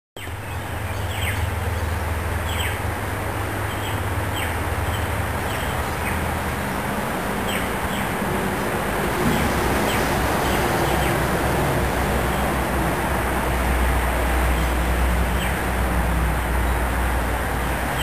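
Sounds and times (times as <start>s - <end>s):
bird chirping: 0.2s - 1.9s.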